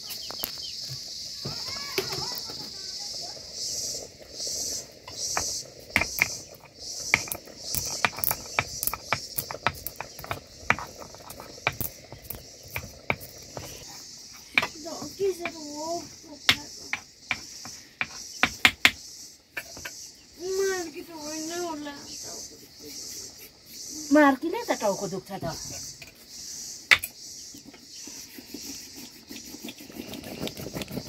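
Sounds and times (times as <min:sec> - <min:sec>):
crickets chirping: 0:00.0 - 0:31.0
stone-on-stone taps: 0:05.1 - 0:13.7, 0:14.5 - 0:14.8.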